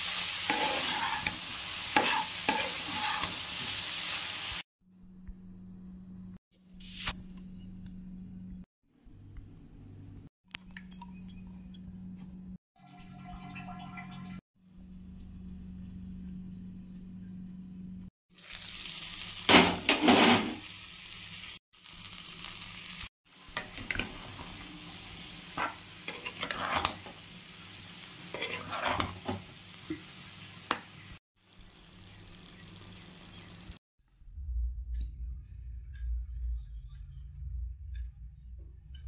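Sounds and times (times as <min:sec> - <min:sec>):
food sizzling in a pan: 0:00.0 - 0:04.6, 0:18.3 - 0:33.8
spoon scraping a pan: 0:00.4 - 0:03.7, 0:23.5 - 0:27.3, 0:28.2 - 0:29.4
low hum: 0:14.7 - 0:18.1, 0:34.1 - 0:39.0.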